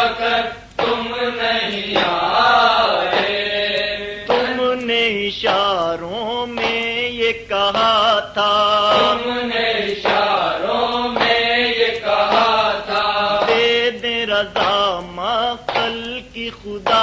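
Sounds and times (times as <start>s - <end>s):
steady held drone: 0.0s - 4.9s, 6.1s - 14.3s.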